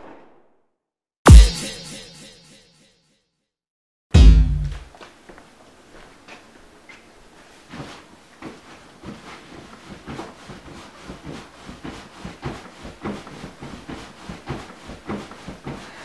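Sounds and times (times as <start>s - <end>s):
thumps and creaks of couch: 7.7s - 16.0s.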